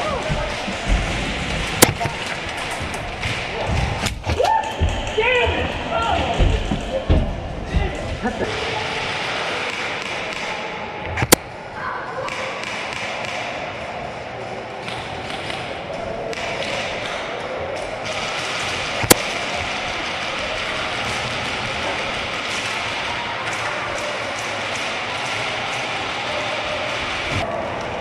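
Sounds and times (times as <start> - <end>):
sharp crack: 0.0 - 5.2, 18.0 - 26.2
distant voices echoing in a hall: 0.0 - 28.0.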